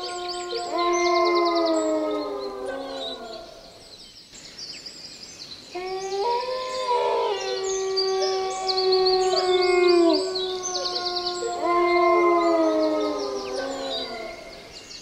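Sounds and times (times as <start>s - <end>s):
dogs howling: 0.0s - 3.6s, 5.8s - 14.7s
birds trilling: 5.8s - 15.0s.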